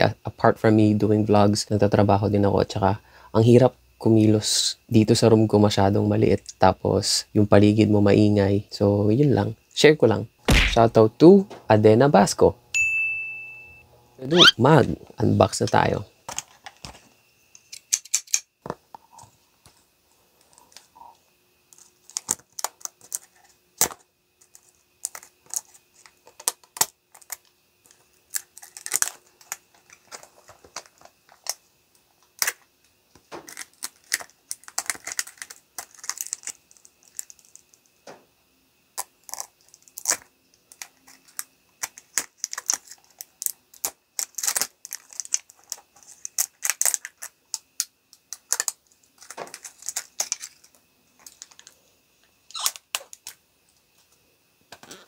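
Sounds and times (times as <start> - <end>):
plastic film crinkling: 24.6 - 31.6, 33.4 - 37.7, 41.0 - 47.3, 48.4 - 51.8.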